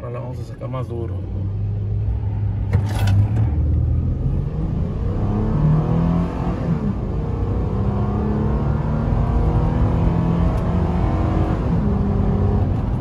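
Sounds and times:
engine under hard acceleration: 1.4s - 13.0s.

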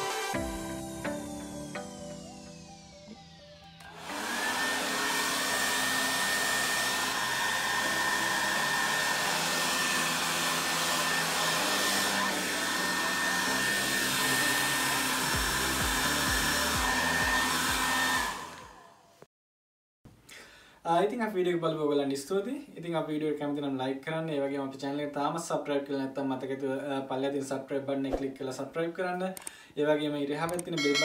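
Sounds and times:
hair dryer high whine: 0.0s - 19.2s, 30.8s - 31.0s.

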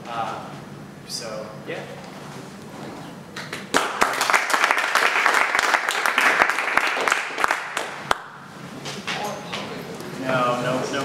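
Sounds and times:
audience applauding: 3.7s - 8.3s.

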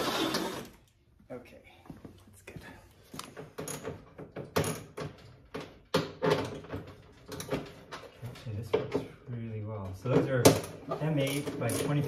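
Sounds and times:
hand tools and hardware clinking: 9.8s - 12.0s.

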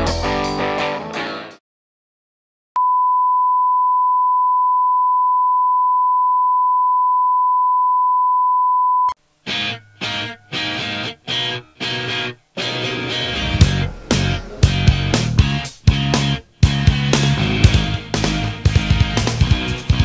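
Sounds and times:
steady test tone beep: 2.8s - 9.2s.

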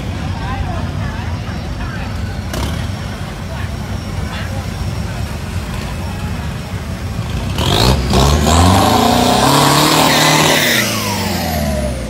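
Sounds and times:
diesel engine revving: 2.4s - 12.0s.

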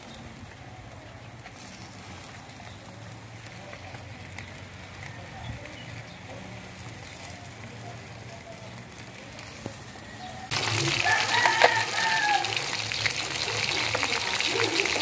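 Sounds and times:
fish frying in hot oil: 5.8s - 15.0s
rooster crowing: 10.0s - 12.9s.

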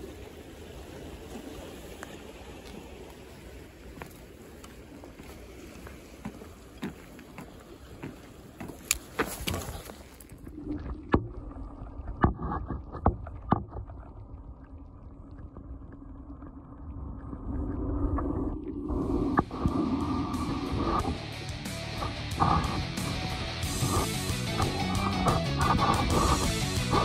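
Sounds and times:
fish splashing and knocking: 12.1s - 14.1s.

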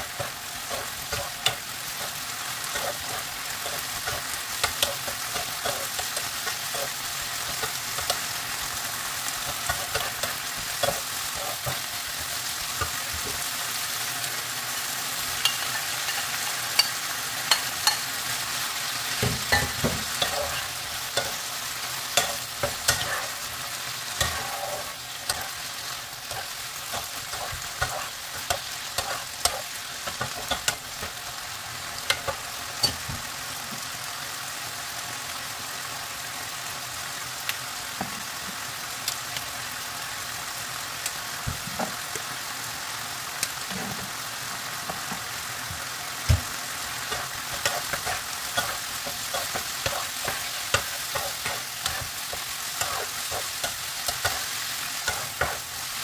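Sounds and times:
spatula scraping pan: 0.0s - 8.3s, 19.1s - 31.3s, 47.0s - 56.0s
chicken sizzling in frying pan: 0.0s - 56.0s.

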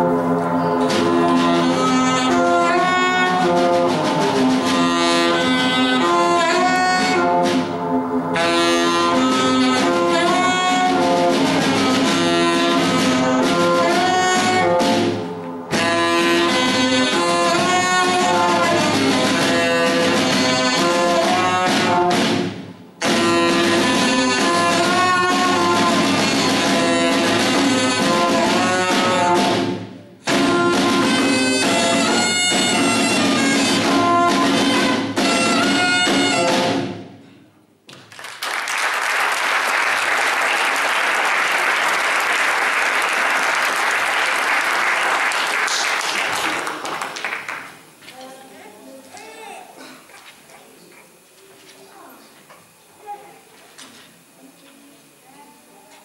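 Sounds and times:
alto saxophone: 0.0s - 22.4s, 23.0s - 37.0s
double bass: 0.0s - 36.9s
drums: 0.0s - 56.0s
audience applause: 38.0s - 47.8s.

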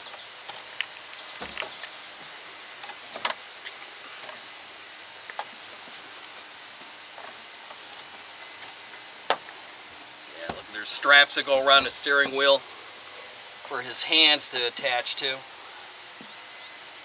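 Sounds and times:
background hiss: 0.0s - 17.0s.

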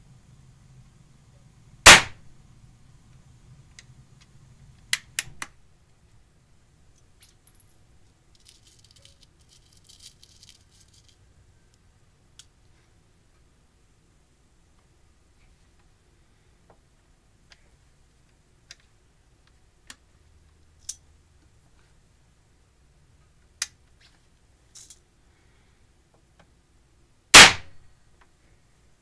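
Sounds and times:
percussion cap firing crack: 1.9s - 2.2s, 27.4s - 27.8s.

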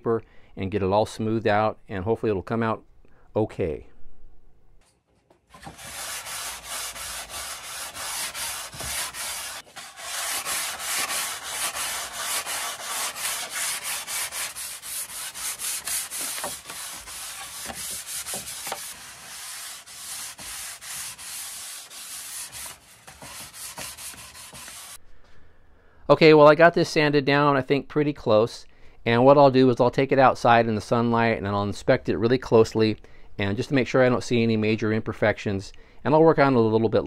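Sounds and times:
sandpaper rubbing wood: 5.5s - 25.0s.

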